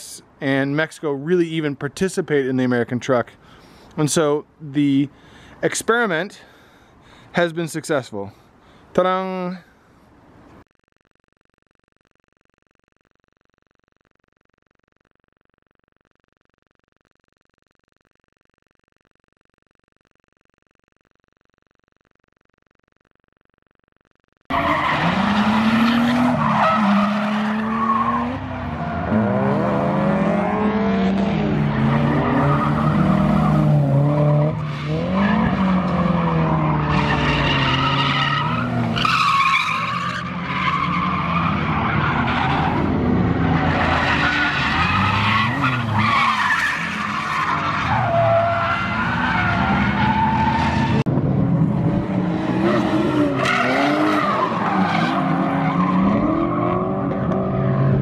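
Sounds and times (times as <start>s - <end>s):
car engines revving: 24.5s - 58.0s.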